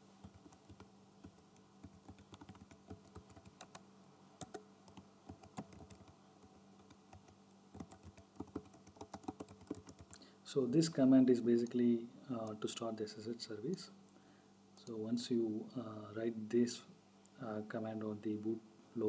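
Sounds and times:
computer keyboard typing: 0.2 - 3.8, 4.4 - 6.2, 6.8 - 10.2.

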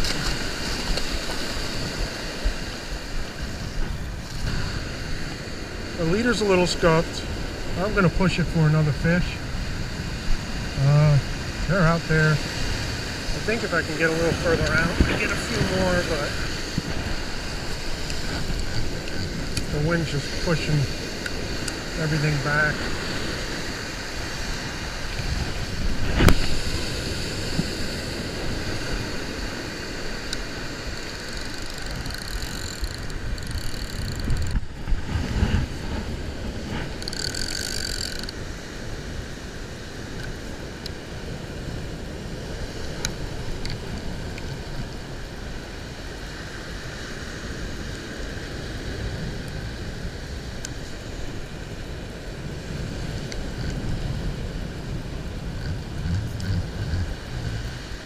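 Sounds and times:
surf washing up beach: 0.0 - 58.0
wind buffeting microphone: 9.3 - 45.6, 47.3 - 58.0.

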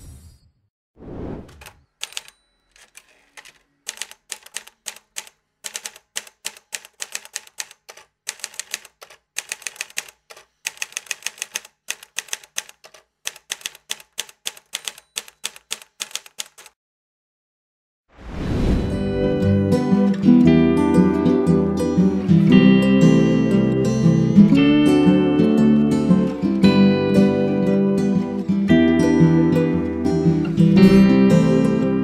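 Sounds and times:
typewriter keys clacking: 1.6 - 16.8.

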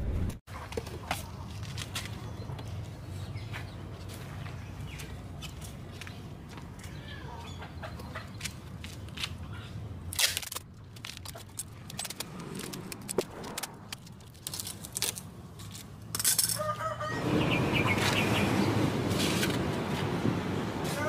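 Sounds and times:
chickens clucking: 7.1 - 8.4.

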